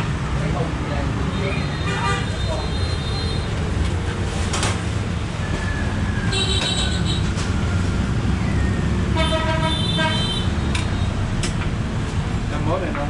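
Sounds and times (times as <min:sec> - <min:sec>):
street traffic rumble: 0:00.0 - 0:13.0
vehicle horn toots: 0:06.3 - 0:07.3, 0:09.2 - 0:10.5.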